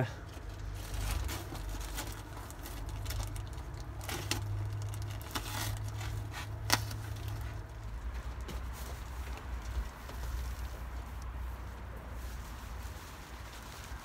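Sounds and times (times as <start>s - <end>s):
knife cutting plastic packaging: 0.9s - 7.5s.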